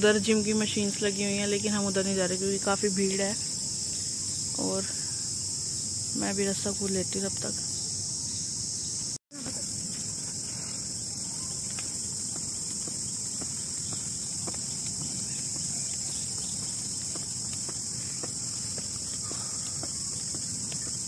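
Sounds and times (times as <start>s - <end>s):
insects droning: 0.0s - 21.0s.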